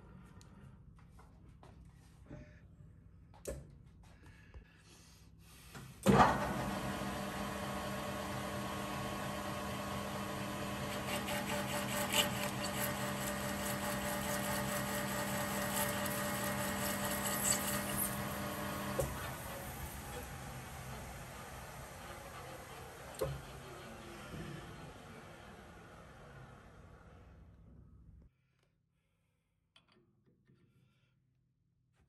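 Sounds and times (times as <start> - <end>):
metal lathe running: 6.3 - 26.8.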